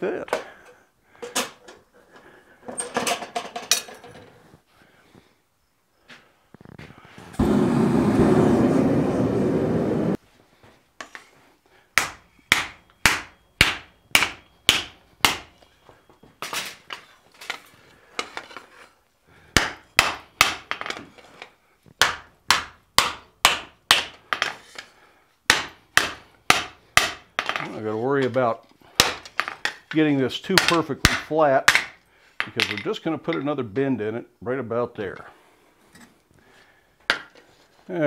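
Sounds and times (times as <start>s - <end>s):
gas forge roaring: 7.2s - 10.2s
hammer striking hot steel: 12.0s - 15.5s.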